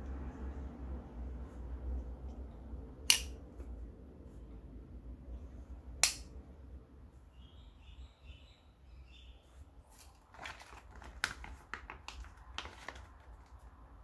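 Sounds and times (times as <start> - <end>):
folding knife blade clicks: 3.1 - 3.4, 6.0 - 6.3.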